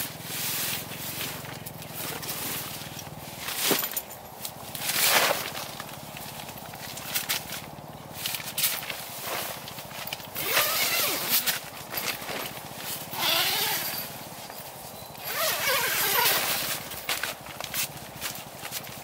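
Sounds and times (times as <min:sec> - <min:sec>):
tent zipper being pulled: 0:10.4 - 0:12.5, 0:13.1 - 0:14.2, 0:15.2 - 0:17.0.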